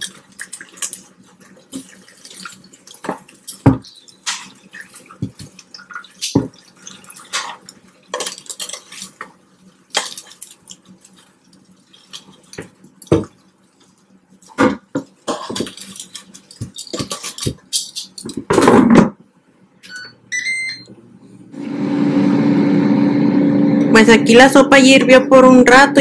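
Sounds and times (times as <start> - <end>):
fan humming: 0.0 - 26.0
control panel beeps: 19.8 - 20.9.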